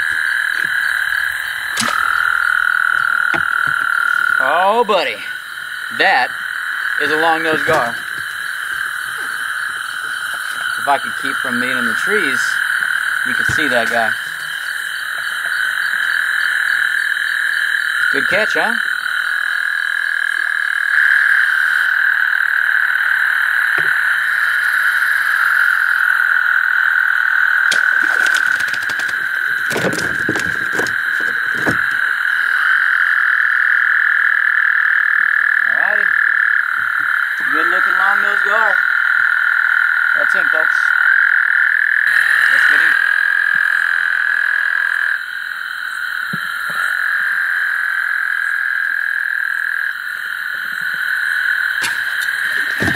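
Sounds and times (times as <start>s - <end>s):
frogs calling: 0.0s - 52.9s.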